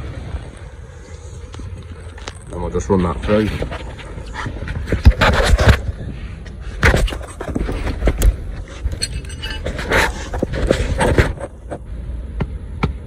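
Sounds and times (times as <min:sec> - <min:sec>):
wind rumble on microphone: 0:00.0 - 0:13.0
metal tools clinking on concrete: 0:08.7 - 0:09.9.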